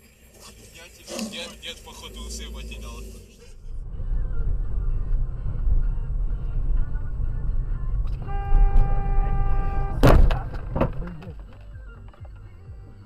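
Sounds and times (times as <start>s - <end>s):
road and engine rumble: 0.0s - 13.0s
car horn: 5.6s - 11.3s.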